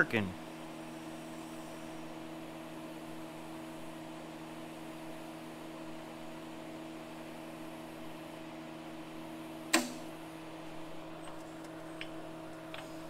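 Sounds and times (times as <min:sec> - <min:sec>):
welder humming at idle: 0:00.0 - 0:13.0
sharp click: 0:09.7 - 0:10.1.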